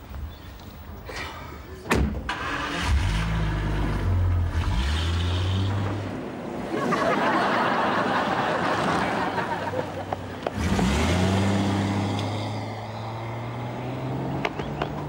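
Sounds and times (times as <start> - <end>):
car engine starting and idling: 2.1 - 6.4
car pulling away: 2.3 - 6.7, 7.4 - 15.0.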